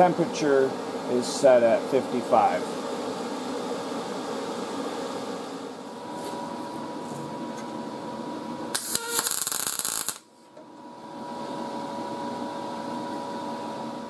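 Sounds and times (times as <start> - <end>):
steady hum: 0.0 - 14.0
welding arc crackling: 8.7 - 10.3.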